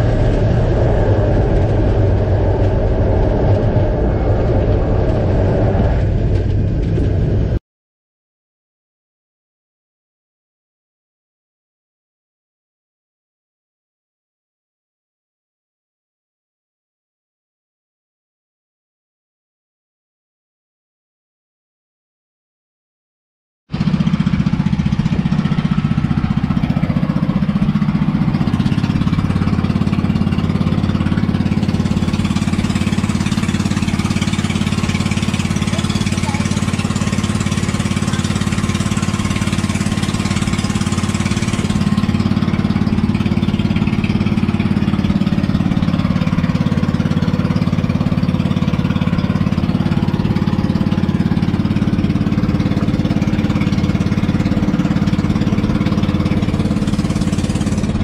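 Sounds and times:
boat engine running: 0.0 - 7.6, 23.7 - 58.0.

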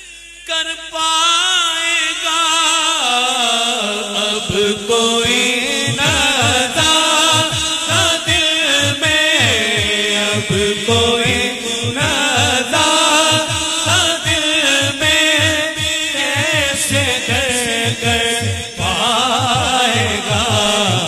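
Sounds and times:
man singing into microphone: 0.0 - 21.0
steady low beat: 5.3 - 21.0.

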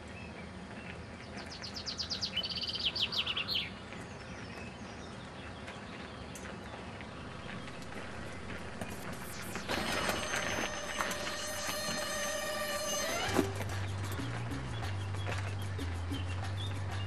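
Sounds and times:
outdoor background hiss: 6.5 - 17.0
songbird trill: 7.2 - 17.0.

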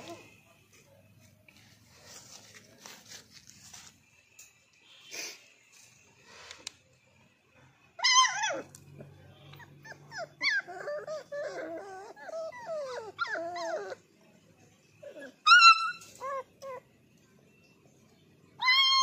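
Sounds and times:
puppies whining: 0.0 - 0.5, 8.0 - 8.8, 9.6 - 14.1, 15.0 - 17.0, 18.6 - 19.0
puppy yelping: 8.0 - 8.7, 9.6 - 14.0, 15.1 - 16.8, 18.6 - 19.0.

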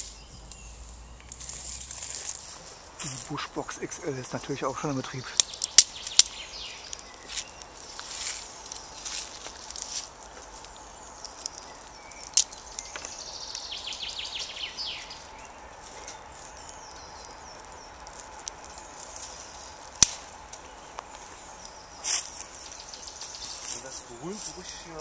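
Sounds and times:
faint bird chirps: 0.0 - 2.3, 10.6 - 25.0
songbird trilling: 3.0 - 9.6, 10.6 - 25.0
sharp cracks: 3.0 - 14.5, 16.1 - 22.7.

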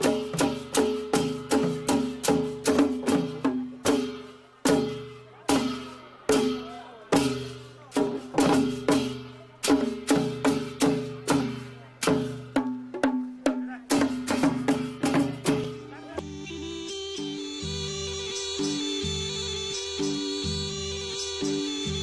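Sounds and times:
drums beaten with sticks: 0.0 - 16.2.

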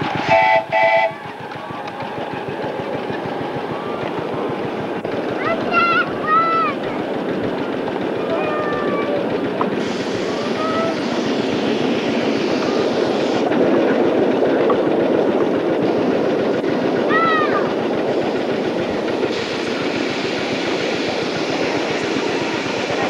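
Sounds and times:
train wheels clattering on track: 0.0 - 23.0
steam whistle toot: 0.2 - 1.2.

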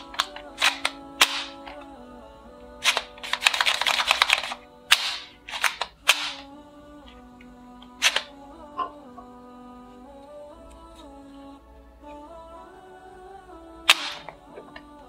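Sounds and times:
background music: 0.0 - 15.0
toy gun shooting: 2.9 - 6.4.

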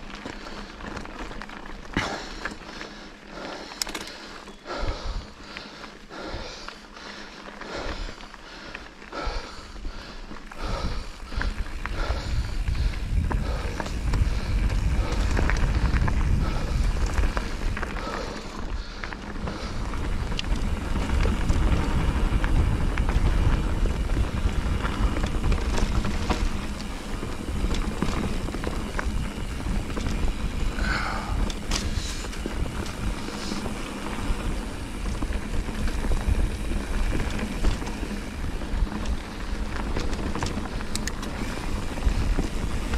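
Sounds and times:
small clicks and scrapes: 3.5 - 4.5, 31.4 - 34.4, 35.1 - 42.9
wind buffeting microphone: 4.7 - 5.5, 9.2 - 42.9.

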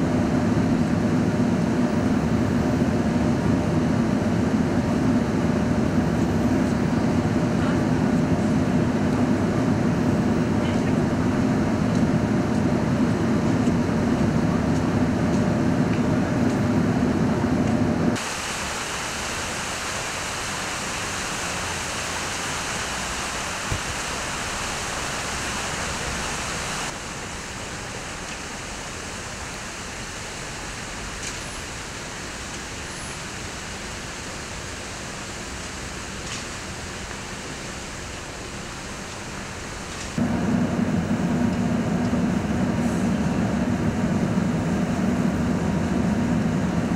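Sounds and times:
traffic rumble: 0.0 - 46.9
steady hiss: 18.2 - 41.5.

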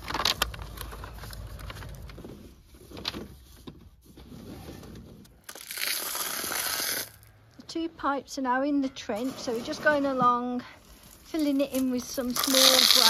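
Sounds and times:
digger scraping: 8.6 - 13.0.

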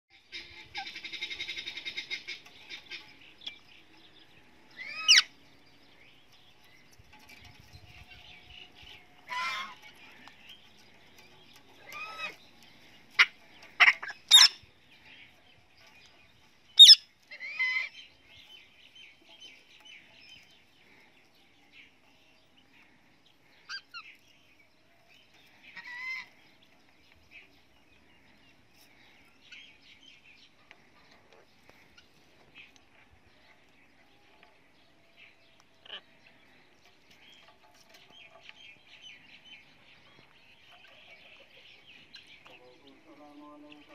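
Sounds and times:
parrots squawking: 4.8 - 5.3, 9.3 - 9.8, 11.8 - 12.4, 13.2 - 14.6, 16.8 - 18.0, 35.8 - 36.1
faint parrot chatter: 11.8 - 12.4, 35.7 - 36.2.

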